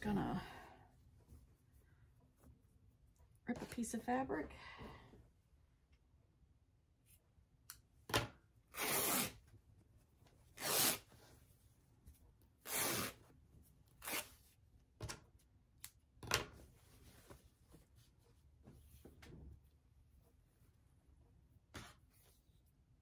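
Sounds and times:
fabric tearing by hand: 8.7 - 9.4, 10.6 - 11.1, 12.6 - 13.2, 13.9 - 14.5.

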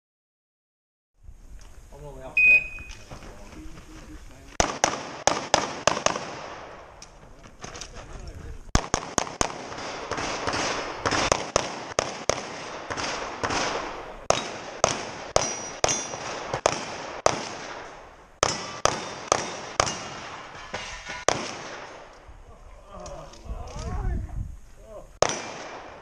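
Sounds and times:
pistol shots with echo: 4.6 - 6.9, 8.7 - 22.1, 25.2 - 26.0.

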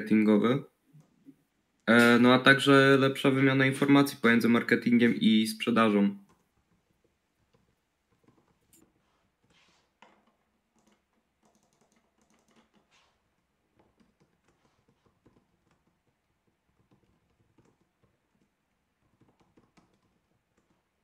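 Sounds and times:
computer keyboard typing: 10.2 - 12.9, 13.7 - 20.8.

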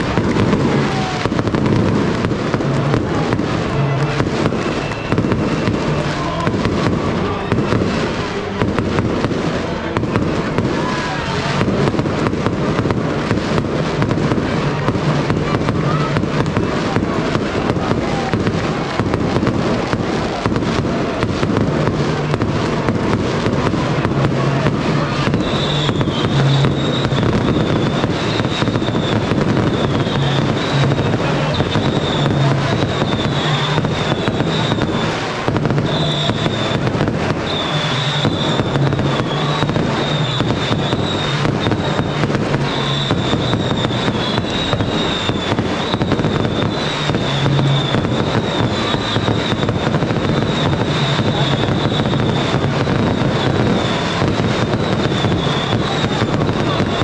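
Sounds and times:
fireworks crackling: 0.0 - 57.0
high whistling tone: 3.7 - 6.4, 25.0 - 35.2, 35.8 - 57.0.

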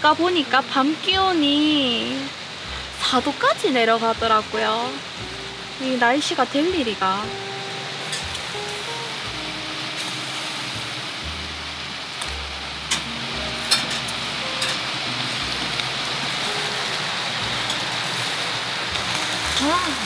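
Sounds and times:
meat sizzling on grill: 0.0 - 20.0
metal tongs clicking on grill: 8.0 - 8.5, 12.2 - 14.9, 17.6 - 18.2.

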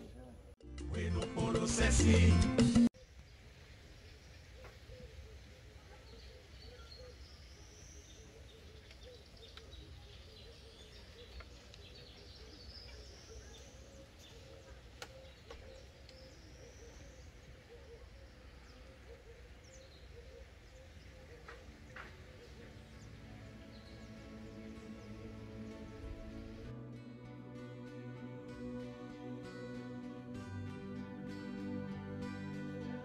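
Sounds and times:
bird chirps: 4.0 - 26.6.

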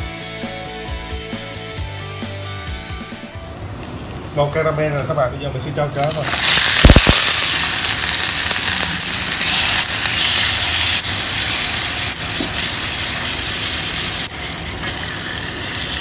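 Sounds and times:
oil sizzling in a pan: 6.0 - 16.0.

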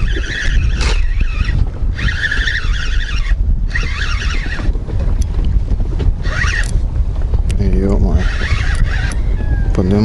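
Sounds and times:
fishing reel drag squealing: 0.0 - 4.7, 6.2 - 6.7, 7.9 - 10.0
wind rumble on microphone: 0.0 - 10.0.

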